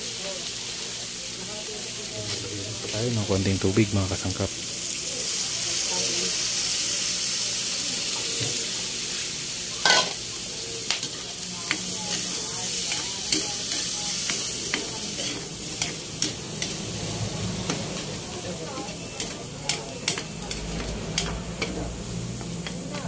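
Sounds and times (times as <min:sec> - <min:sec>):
food sizzling in a pan: 0:00.0 - 0:23.0
metal utensil scraping a pan: 0:09.8 - 0:10.2.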